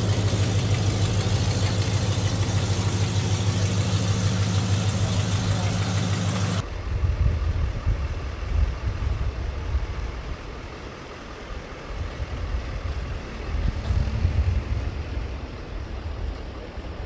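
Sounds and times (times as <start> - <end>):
pickup engine and road rumble: 0.0 - 17.0.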